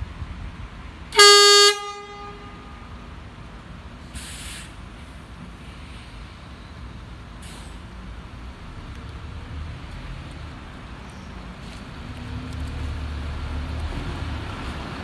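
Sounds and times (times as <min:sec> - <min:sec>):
bus idling rumble: 0:00.0 - 0:15.0
bus horn toot: 0:01.1 - 0:03.0
short air hisses: 0:04.1 - 0:06.3, 0:07.4 - 0:07.9.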